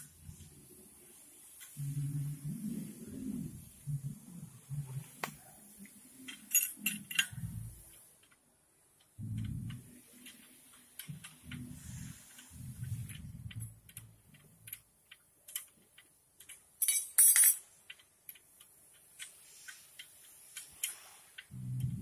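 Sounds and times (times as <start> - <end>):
low hum: 1.8 - 6.1, 7.2 - 7.9, 9.2 - 10.4, 11.0 - 14.8, 21.5 - 22.0.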